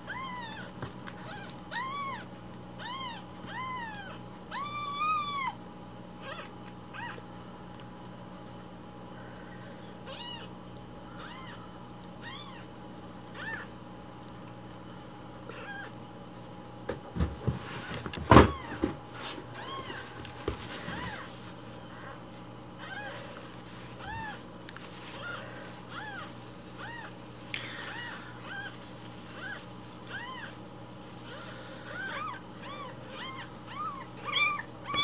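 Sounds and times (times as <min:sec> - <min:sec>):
kitten mewing: 0:31.2 - 0:35.0.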